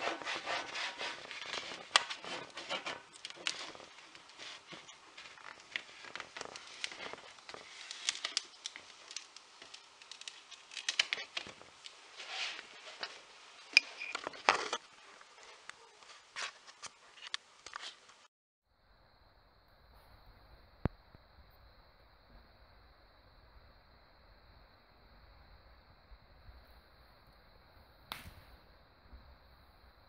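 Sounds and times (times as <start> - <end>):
cardstock rustling and scraping: 0.0 - 18.3
paper clicks and snaps: 1.4 - 12.0.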